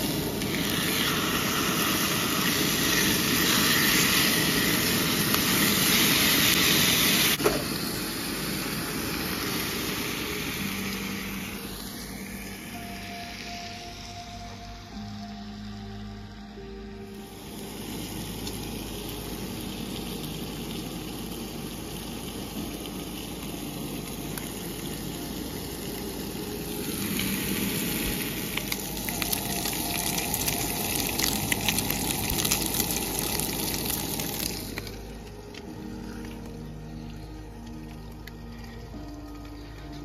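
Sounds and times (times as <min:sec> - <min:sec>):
bacon sizzling in skillet: 0:00.0 - 0:14.1, 0:17.4 - 0:35.1.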